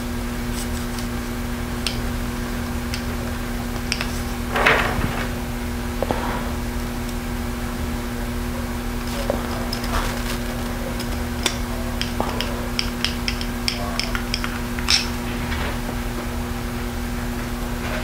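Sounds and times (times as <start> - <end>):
steady low hum: 0.0 - 18.0
screwdriver clicking: 11.0 - 15.2.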